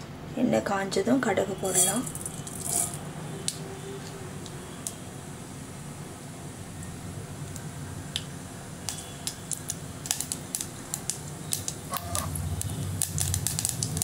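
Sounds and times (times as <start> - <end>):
mustard seeds popping in hot oil: 1.8 - 5.0, 7.4 - 14.0.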